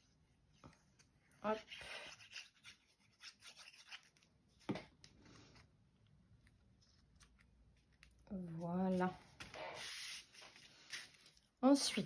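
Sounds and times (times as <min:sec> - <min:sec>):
paper rustling and rubbing: 0:08.4 - 0:11.4.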